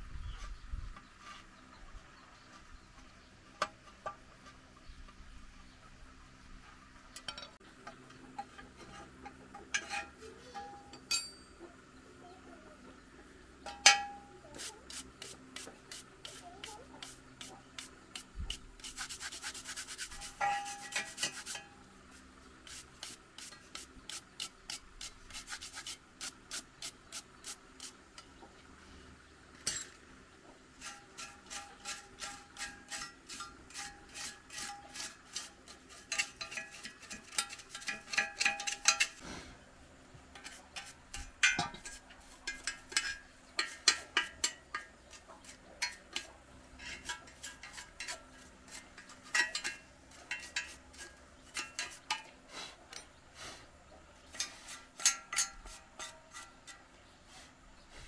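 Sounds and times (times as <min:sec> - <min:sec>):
metal on metal clanks: 0:07.1 - 0:07.6, 0:08.2 - 0:11.6, 0:13.6 - 0:14.3, 0:20.2 - 0:21.9, 0:35.7 - 0:39.2, 0:40.4 - 0:45.2, 0:45.8 - 0:52.3, 0:54.3 - 0:56.8
metal tool scraping steel screen: 0:09.7 - 0:11.3, 0:13.7 - 0:21.9, 0:30.8 - 0:39.2, 0:40.4 - 0:52.3, 0:54.2 - 0:56.8.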